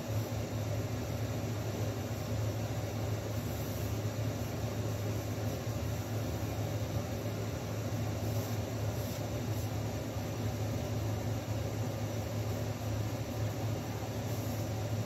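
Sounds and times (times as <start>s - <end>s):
machine hum with hiss: 0.0s - 15.0s.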